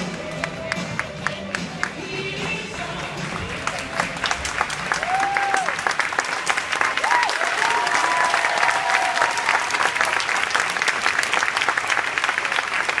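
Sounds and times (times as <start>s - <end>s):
audience clapping: 0.0s - 13.0s
high cheer: 3.7s - 13.0s.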